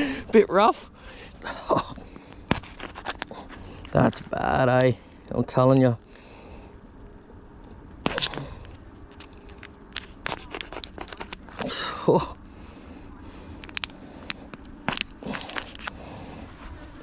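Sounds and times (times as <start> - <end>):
plastic bottle popping and crackling: 8.0 - 11.7, 13.6 - 13.9, 14.5 - 15.9.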